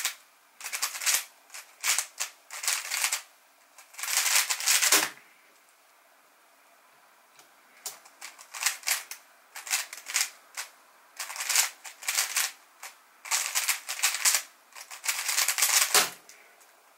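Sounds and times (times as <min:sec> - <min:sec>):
puzzle cube clicking: 0:07.9 - 0:16.1.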